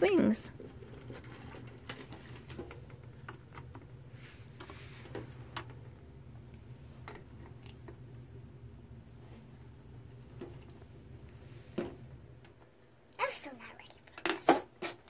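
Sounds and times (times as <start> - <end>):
faint low room hum: 0.0 - 15.0.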